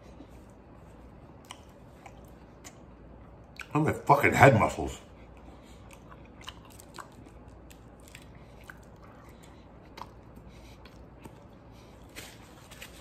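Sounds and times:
man chewing food: 0:00.0 - 0:03.8, 0:05.1 - 0:13.0
faint low hum: 0:00.0 - 0:13.0
mouth clicks and smacks: 0:01.3 - 0:03.8, 0:05.3 - 0:11.5.

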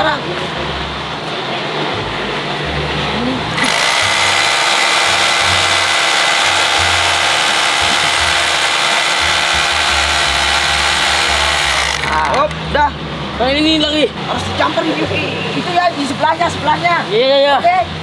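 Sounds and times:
hammer drill whining: 0:03.6 - 0:12.3.

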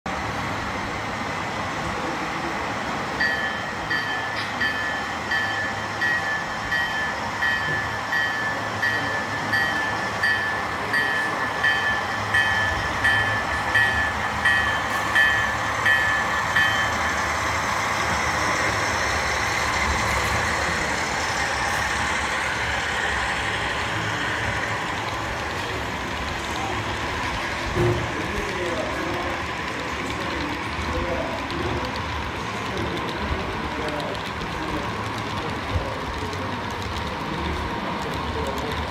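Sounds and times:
model train rolling on track: 0:00.1 - 0:38.9
model train bell ringing: 0:03.1 - 0:24.8.

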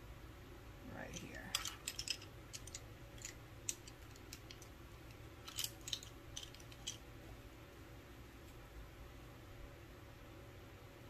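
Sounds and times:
makeup items clicking and tapping: 0:01.4 - 0:07.0.

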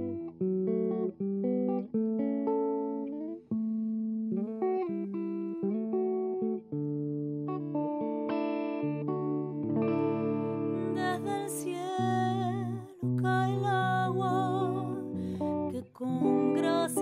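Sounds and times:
plucked guitar melody: 0:00.0 - 0:17.0.

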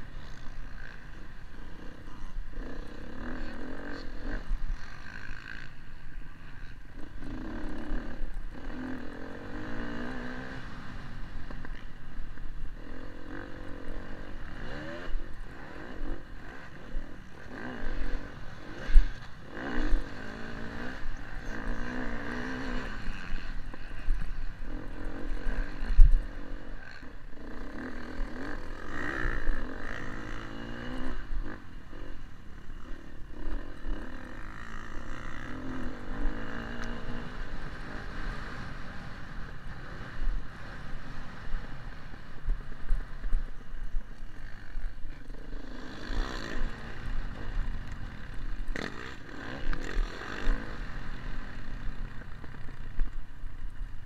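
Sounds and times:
motocross engine revving: 0:06.4 - 0:11.8, 0:12.8 - 0:42.3, 0:45.4 - 0:52.8.

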